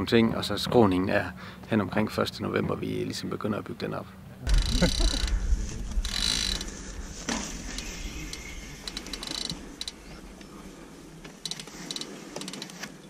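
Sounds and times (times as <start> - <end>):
bicycle freehub ratchet clicking: 4.5 - 5.3, 6.1 - 6.6, 8.9 - 10.0, 11.4 - 12.8.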